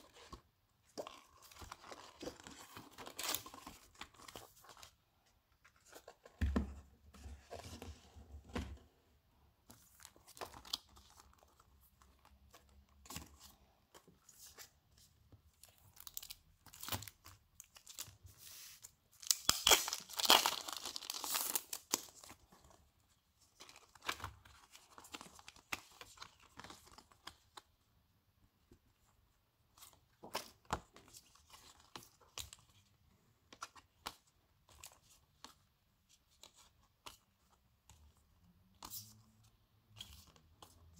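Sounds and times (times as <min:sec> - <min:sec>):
plastic sleeve tearing and crackling: 0:19.2 - 0:22.0.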